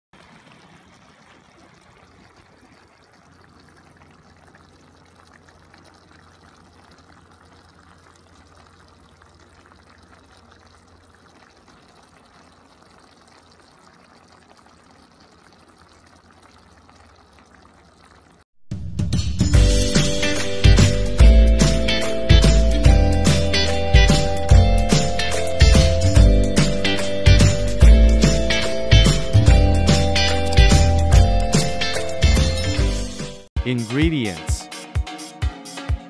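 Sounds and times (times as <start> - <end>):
stew simmering and bubbling: 0.2 - 18.8.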